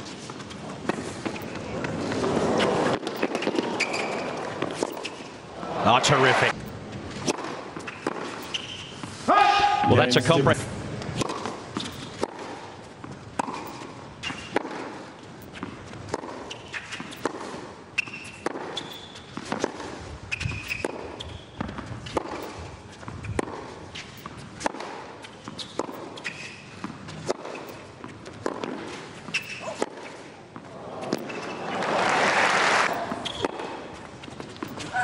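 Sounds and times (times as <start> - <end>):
tennis ball bouncing on court: 0.2 - 5.3, 6.6 - 9.2, 11.0 - 31.6, 33.0 - 35.0
short high squeaks: 3.7 - 5.2, 29.3 - 29.7
crowd hiss: 31.6 - 33.0.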